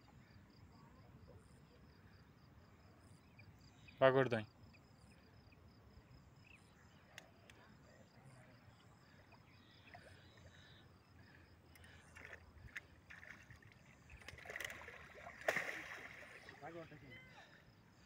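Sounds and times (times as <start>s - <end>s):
water splashing and sloshing: 11.2s - 17.0s.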